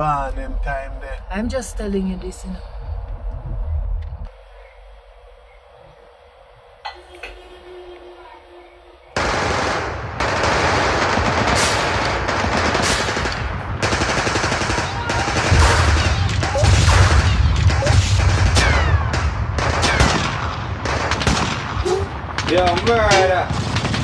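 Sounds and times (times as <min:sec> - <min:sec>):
low rumble: 0:00.0 - 0:06.8
rapid automatic gunfire: 0:09.2 - 0:24.0.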